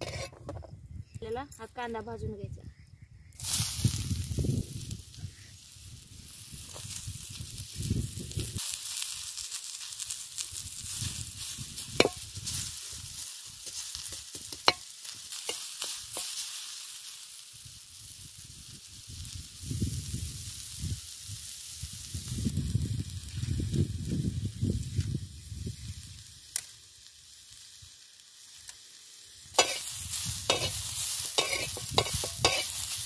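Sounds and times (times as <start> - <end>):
metal spatula scraping pan: 0.0 - 0.4, 29.6 - 29.9, 30.5 - 32.9
onion sizzling in pan: 0.0 - 0.4, 3.3 - 33.0
spatula clinking on pan: 31.4 - 32.7.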